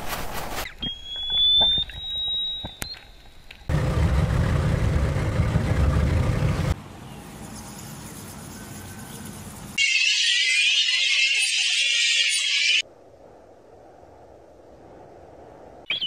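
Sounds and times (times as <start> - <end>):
whale clicks: 0.7 - 3.7
whale whistle: 0.8 - 3.1.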